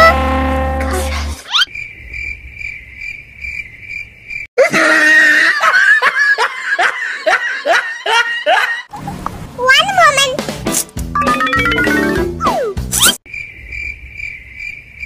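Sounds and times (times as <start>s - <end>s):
crickets chirping: 1.6s - 4.5s, 13.3s - 15.0s
person laughing: 4.6s - 9.2s.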